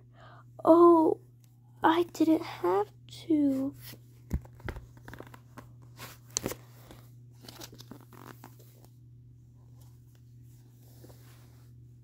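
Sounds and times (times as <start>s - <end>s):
paper page rustling: 3.8s - 8.9s.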